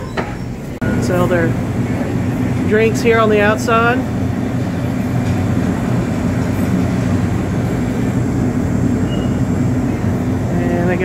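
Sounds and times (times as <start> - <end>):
ventilation hum and rumble: 0.0 - 11.0.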